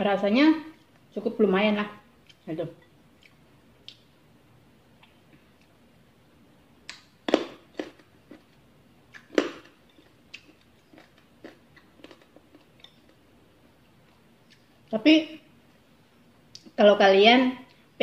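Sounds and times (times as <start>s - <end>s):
chewing: 3.1s - 4.1s, 6.9s - 13.2s.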